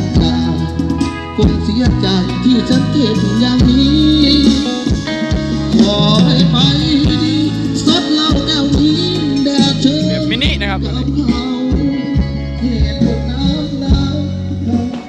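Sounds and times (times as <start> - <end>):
loud music through speakers: 0.0 - 15.0
person singing: 0.0 - 15.0.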